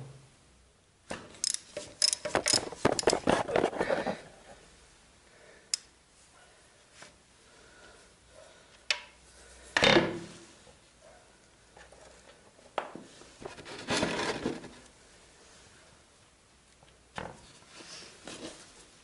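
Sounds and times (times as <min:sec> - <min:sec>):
metallic clicks: 0:01.4 - 0:03.2.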